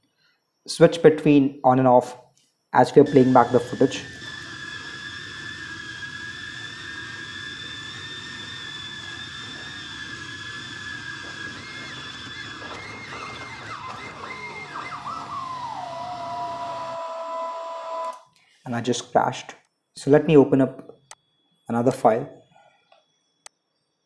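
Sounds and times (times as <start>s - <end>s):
drone motors whining: 2.5s - 19.1s.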